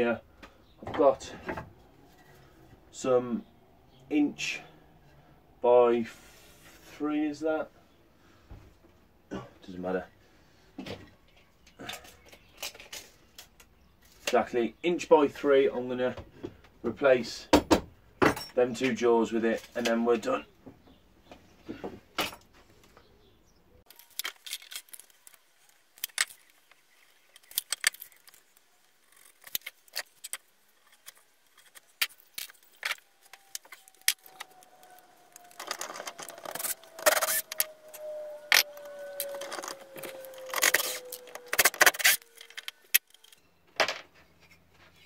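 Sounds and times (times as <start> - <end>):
rasping noise: 27.4 - 43.0.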